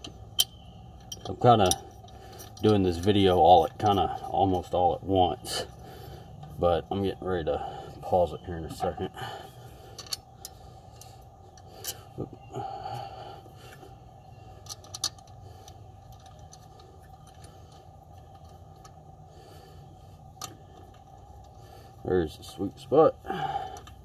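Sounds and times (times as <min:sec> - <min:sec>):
low background hum: 0:00.0 - 0:24.0
metal clicks and scrapes: 0:14.6 - 0:19.0.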